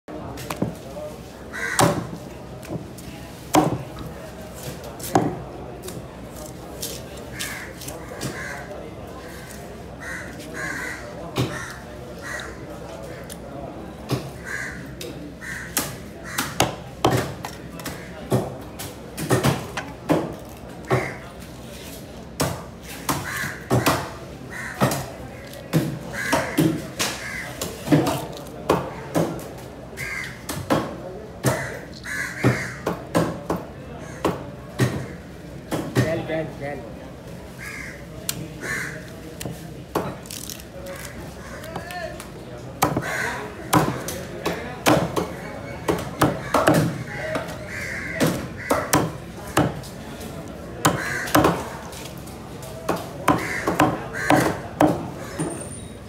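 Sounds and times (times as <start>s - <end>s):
crows cawing: 1.5s - 2.2s, 7.3s - 13.3s, 14.3s - 16.7s, 20.9s - 21.3s, 23.2s - 25.5s, 26.1s - 27.6s, 30.0s - 30.4s, 31.4s - 32.9s, 34.0s - 35.2s, 37.5s - 39.1s, 40.9s - 41.9s, 42.8s - 44.0s, 46.2s - 49.2s, 50.9s - 51.7s, 53.3s - 55.5s
knife chopping on wooden block: 53.3s - 55.0s.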